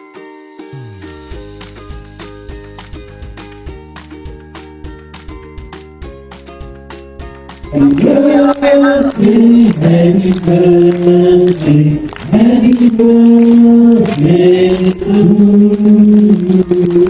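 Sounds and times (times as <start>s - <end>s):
hand-clapping: 2.8s - 5.3s, 7.5s - 17.0s
crowd singing birthday song: 7.7s - 17.0s.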